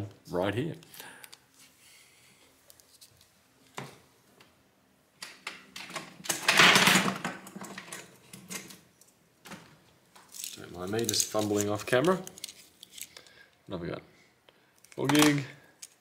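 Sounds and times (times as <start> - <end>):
small parts clicking and clattering: 10.2 - 13.3, 14.8 - 16.0.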